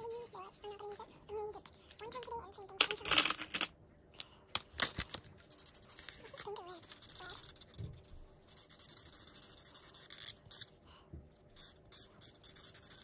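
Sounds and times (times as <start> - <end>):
marker scribbling on paper: 0.0 - 1.1, 5.4 - 10.8, 11.5 - 13.0.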